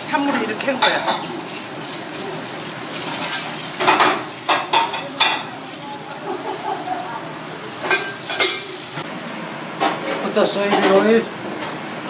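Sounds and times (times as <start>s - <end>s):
tap water spraying into a sink: 0.0s - 9.0s.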